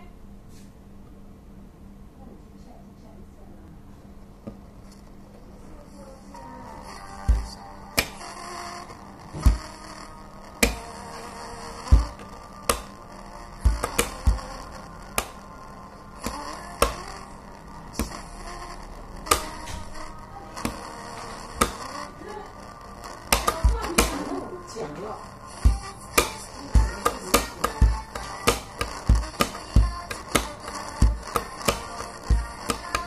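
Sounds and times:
pens tapping on wooden table: 7.3s - 8.2s, 10.6s - 10.8s, 11.9s - 12.9s, 13.6s - 14.5s, 16.2s - 17.0s, 23.3s - 24.3s, 25.6s - 33.0s.

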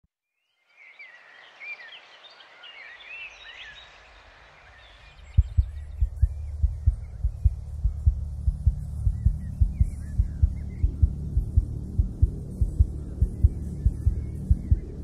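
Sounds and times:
soft outdoor hiss: 0.4s - 15.0s
birds chirping and singing: 0.8s - 15.0s
low hum: 5.0s - 15.0s.

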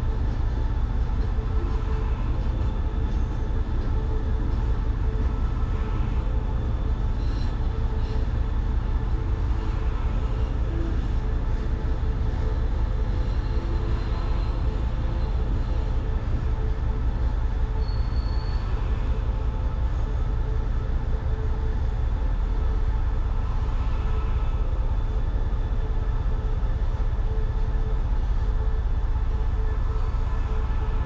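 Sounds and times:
brief high squeal: 17.8s - 18.7s.

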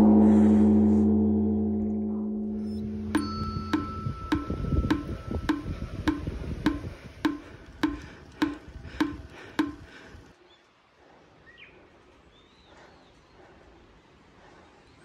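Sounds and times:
wood block percussion music: 3.1s - 9.9s.

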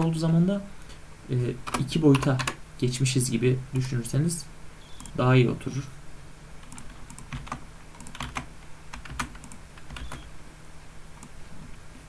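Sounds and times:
faint low hum: 0.0s - 12.0s
keyboard keys clicking: 6.6s - 10.3s.

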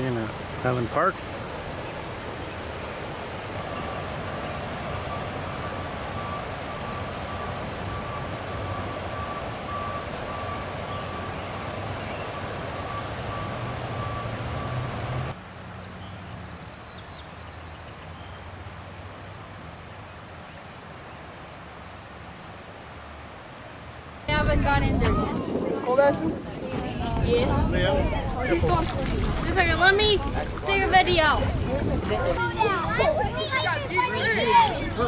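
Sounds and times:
reversing alarm beeping: 5.1s - 15.0s.

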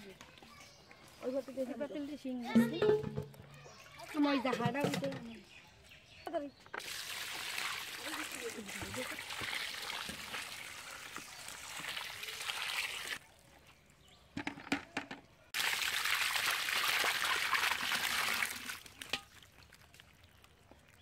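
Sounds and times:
water splashing and pouring: 6.8s - 13.8s, 15.5s - 21.0s.

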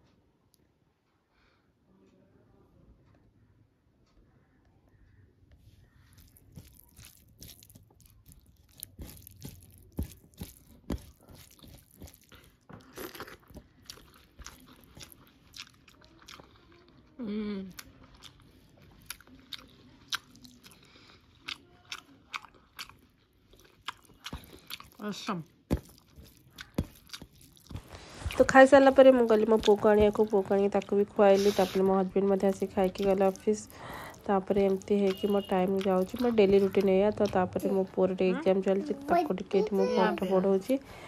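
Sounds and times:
crunchy food chewing: 5.8s - 37.9s.

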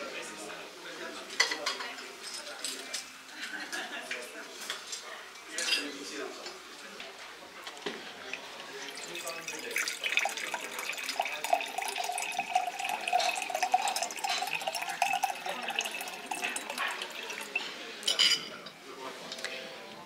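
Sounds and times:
water pouring into glass: 8.2s - 18.2s.

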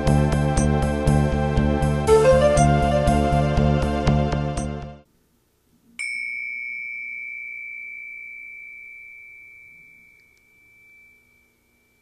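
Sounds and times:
metal chime ringing: 6.0s - 12.0s.

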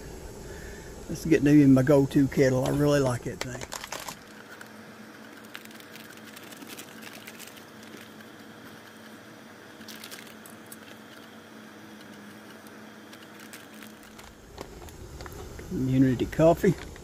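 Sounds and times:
camp stove hissing: 0.0s - 17.0s
paper bag crinkling: 3.4s - 9.0s, 9.8s - 11.3s, 12.0s - 15.5s.

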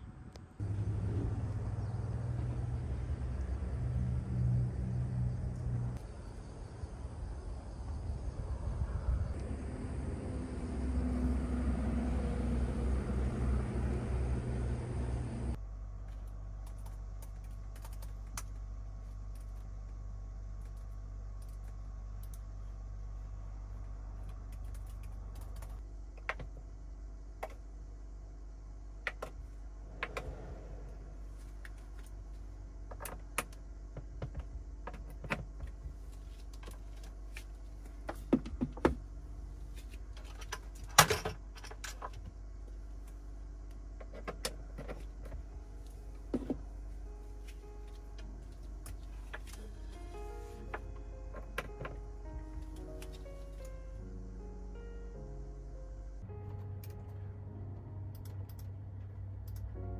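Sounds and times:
steady low hum: 0.0s - 59.9s
laptop keyboard typing: 16.7s - 18.4s.

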